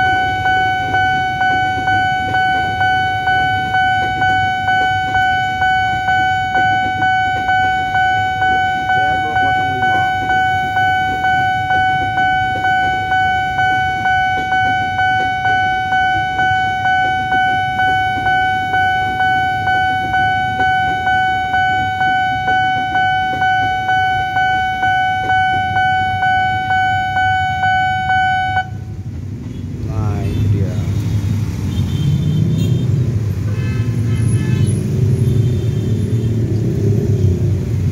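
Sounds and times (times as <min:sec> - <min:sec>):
level crossing bell ringing: 0:00.0 - 0:28.8
electric train rumbling past: 0:00.0 - 0:31.7.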